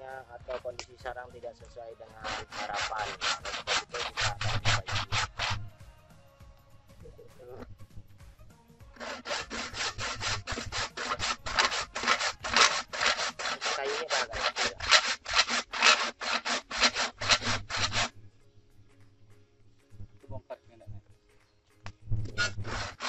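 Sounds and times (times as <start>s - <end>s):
hand saw cutting wood: 0.0s - 0.8s, 2.0s - 5.7s, 9.0s - 18.1s, 22.3s - 23.0s.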